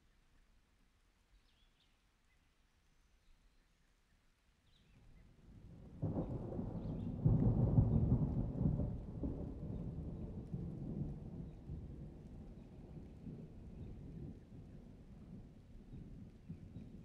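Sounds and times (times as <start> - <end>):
deep thunder-like rumble: 5.9 - 17.0.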